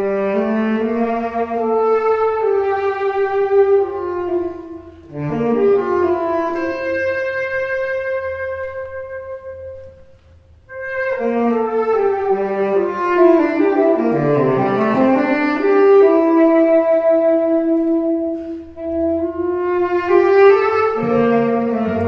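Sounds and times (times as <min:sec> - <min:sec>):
chamber ensemble playing: 0:10.7 - 0:22.0
tenor saxophone held note: 0:21.5 - 0:22.0.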